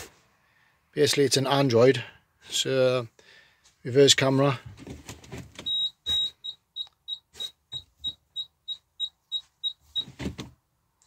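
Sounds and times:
electronic beeping: 5.7s - 10.1s.

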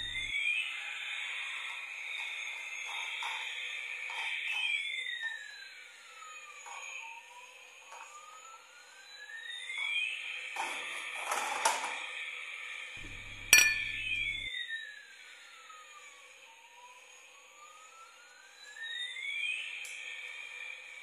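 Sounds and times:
siren-like toy tone: 0.0s - 10.8s, 13.0s - 21.0s
steady high electronic tone: 13.0s - 14.5s.

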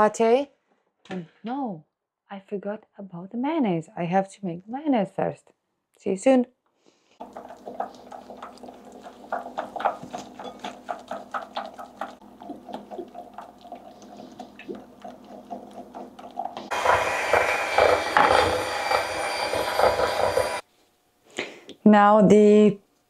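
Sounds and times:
electric hand mixer whirring: 7.2s - 20.6s
spoon scraping glass bowl: 7.2s - 20.6s.

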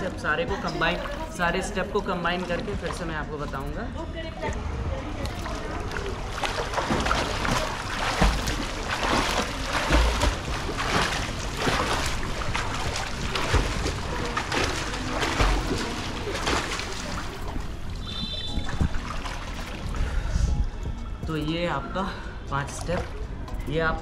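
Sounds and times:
swimmer splashing water: 5.2s - 20.2s.

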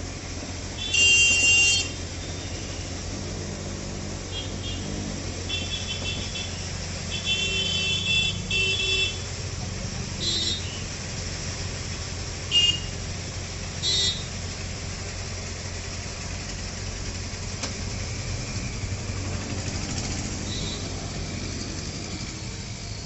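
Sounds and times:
truck engine running: 0.0s - 23.0s
vehicle horn toots: 0.8s - 3.0s, 4.3s - 9.3s, 10.2s - 10.9s, 12.5s - 13.0s, 13.8s - 14.3s, 20.4s - 21.1s.

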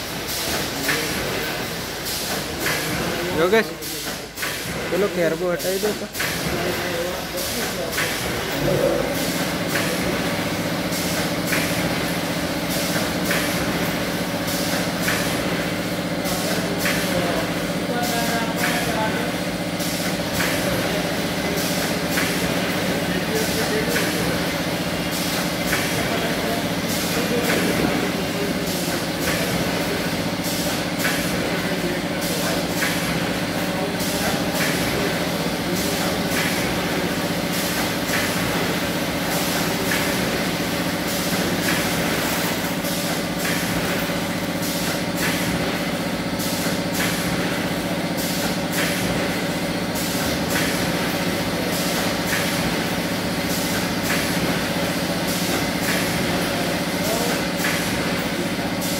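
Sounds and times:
machine motor hum: 0.0s - 58.9s
rapid machine clicking: 0.0s - 58.9s.

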